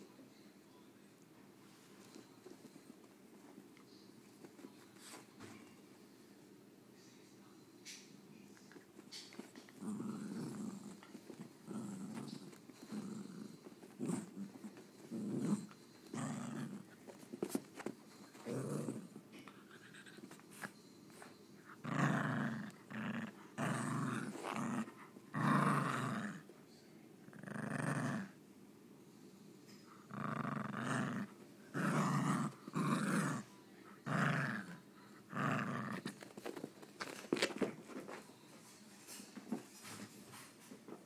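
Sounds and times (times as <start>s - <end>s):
dog play-growling: 8.7s - 26.5s, 27.2s - 28.4s, 29.7s - 38.2s.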